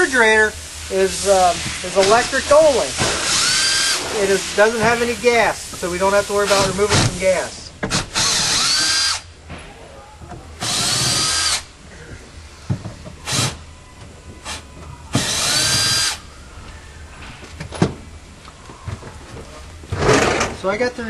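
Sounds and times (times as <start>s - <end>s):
cordless drill running: 3.2s - 4.0s, 7.9s - 9.3s, 10.6s - 11.7s, 15.2s - 16.2s.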